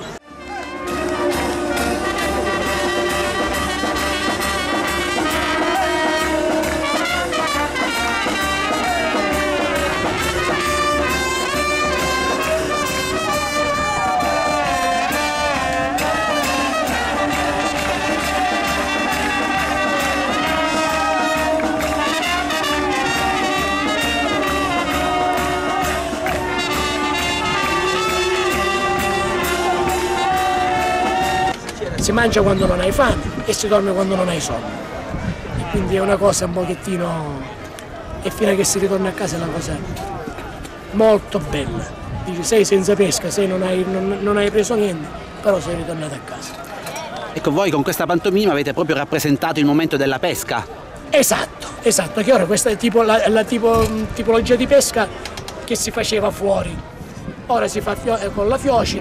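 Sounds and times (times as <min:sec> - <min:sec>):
brass band playing: 0:00.0 - 0:36.9, 0:51.1 - 0:59.0.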